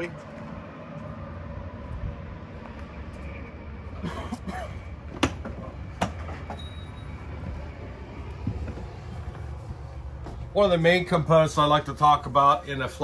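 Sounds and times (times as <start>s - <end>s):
low outdoor rumble: 0.0s - 13.0s
footsteps on metal steps: 5.1s - 10.7s.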